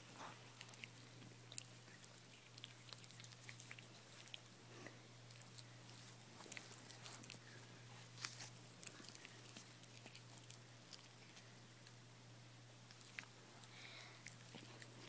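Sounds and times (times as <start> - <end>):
dog chewing paper: 0.0 - 11.9.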